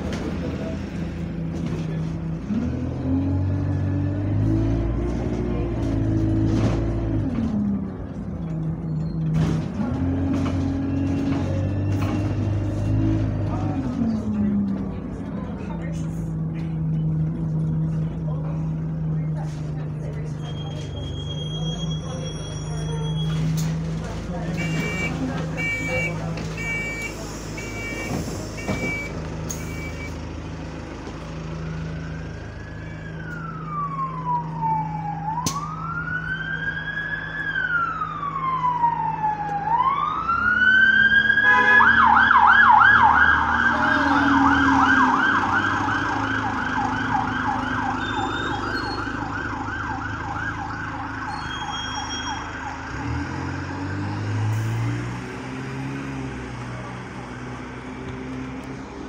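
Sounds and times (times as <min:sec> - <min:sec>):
diesel bus engine: 0:00.0 - 0:59.0
emergency vehicle siren: 0:31.6 - 0:58.6.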